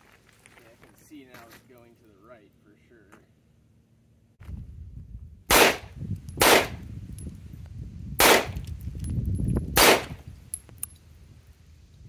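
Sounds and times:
pistol shots: 5.5 - 6.8, 8.2 - 8.6, 9.8 - 10.2.

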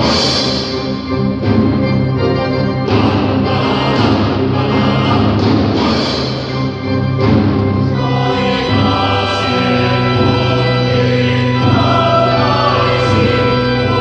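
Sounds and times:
boys' choir singing: 2.9 - 6.5, 7.8 - 14.0.

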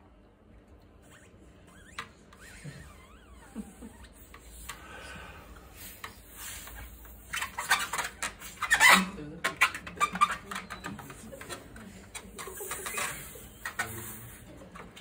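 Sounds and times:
rubber balloon squeaking: 1.0 - 4.7, 6.6 - 14.4.

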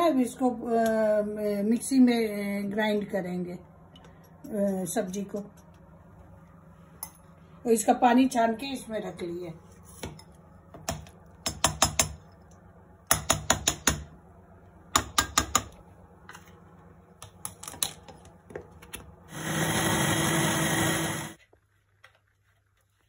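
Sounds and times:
electric mixer grinder running: 19.3 - 21.4.

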